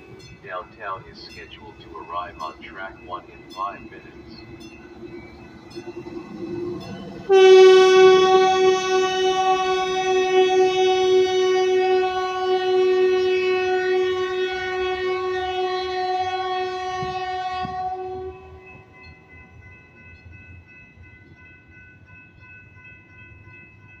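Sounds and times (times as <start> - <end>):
faint steady tone: 0.3 - 6.9
train horn blast: 7.2 - 18.8.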